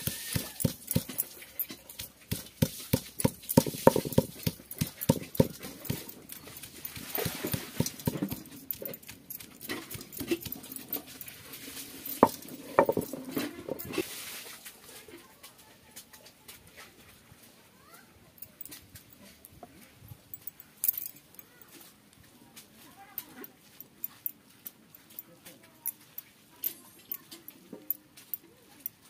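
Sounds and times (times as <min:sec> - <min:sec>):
stone pestle pounding on stone: 0:00.0 - 0:10.6, 0:12.2 - 0:13.2.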